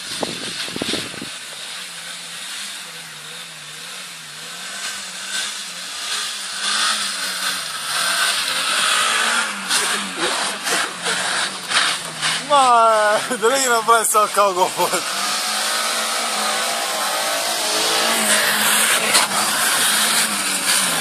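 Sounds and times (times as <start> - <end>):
car engine revving: 0.0 - 21.0
tyres throwing up snow: 7.4 - 21.0.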